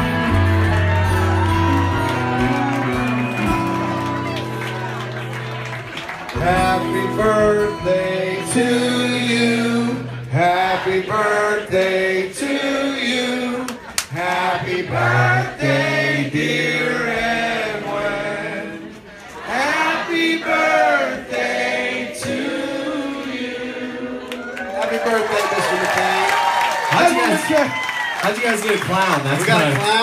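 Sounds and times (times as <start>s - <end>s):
band playing: 0.0s - 13.6s
men singing together: 6.4s - 24.2s.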